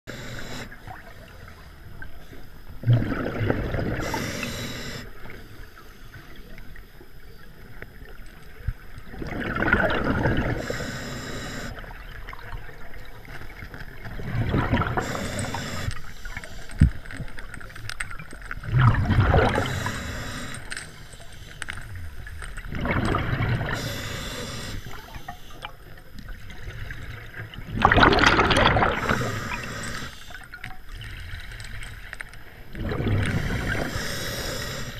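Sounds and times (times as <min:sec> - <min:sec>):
regulator hiss: 0:00.1 - 0:02.6, 0:03.9 - 0:06.4, 0:10.4 - 0:11.8, 0:15.0 - 0:17.0, 0:19.5 - 0:21.8, 0:23.7 - 0:25.6, 0:28.9 - 0:30.4, 0:33.4 - 0:34.9
diver exhaling bubbles: 0:02.8 - 0:05.1, 0:09.1 - 0:11.8, 0:14.1 - 0:16.0, 0:18.6 - 0:20.6, 0:22.7 - 0:25.1, 0:27.7 - 0:30.1, 0:32.8 - 0:34.9.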